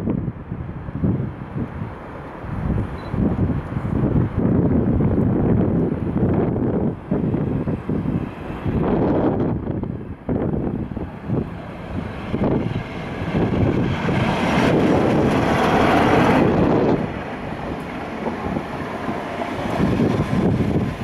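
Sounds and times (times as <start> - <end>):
diesel locomotive passing: 0.0 - 21.0
wheels running on rails: 8.2 - 21.0.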